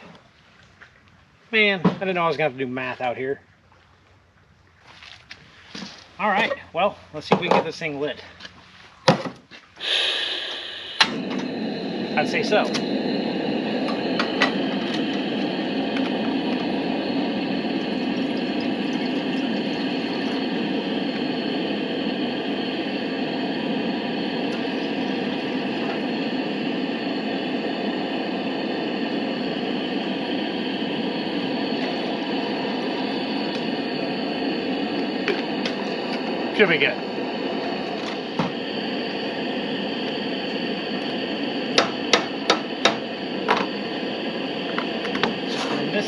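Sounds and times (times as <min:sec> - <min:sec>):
gas burner hissing: 0:09.8 - 0:46.0.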